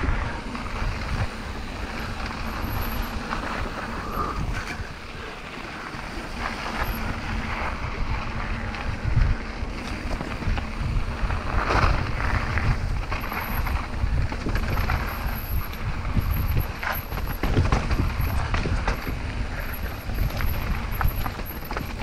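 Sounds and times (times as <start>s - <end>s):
tyres rumbling on dirt: 0.0s - 22.0s
wind buffeting microphone: 0.0s - 22.0s
bike knocks and rattles: 5.8s - 22.0s.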